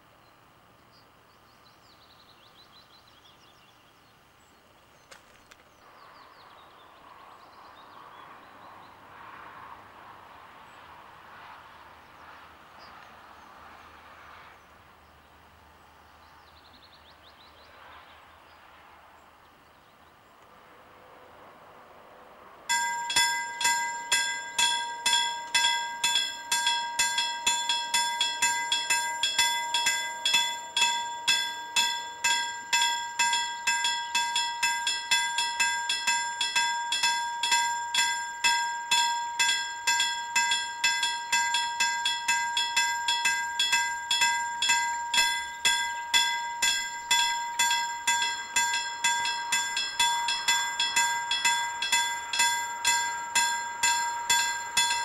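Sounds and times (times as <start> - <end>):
level crossing bell ringing: 22.7 - 55.0.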